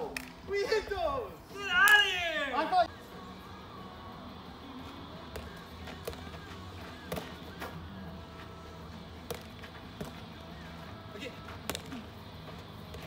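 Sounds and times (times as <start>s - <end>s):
ball bouncing off net: 5.3s - 6.3s, 7.1s - 7.4s, 9.2s - 10.2s, 11.6s - 12.0s.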